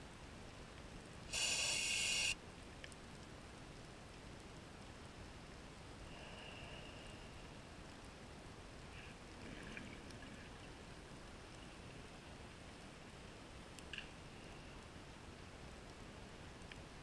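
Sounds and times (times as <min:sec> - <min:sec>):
underwater hiss: 0:01.3 - 0:02.4.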